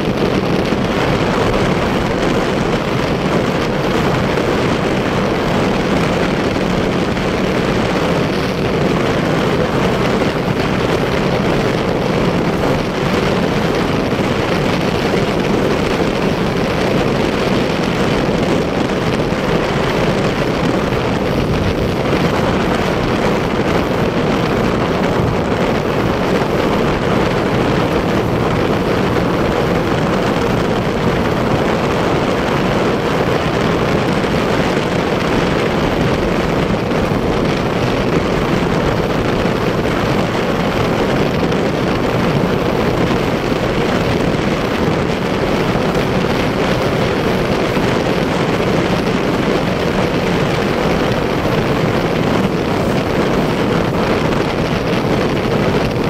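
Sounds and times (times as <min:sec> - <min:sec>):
motorcycle engine running: 0:00.0 - 0:56.0
wind rushing over microphone: 0:00.0 - 0:56.0.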